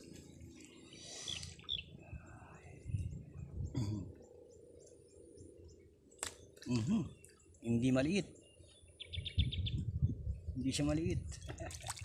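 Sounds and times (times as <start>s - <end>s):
pond ambience: 0.0s - 2.1s, 11.4s - 12.0s.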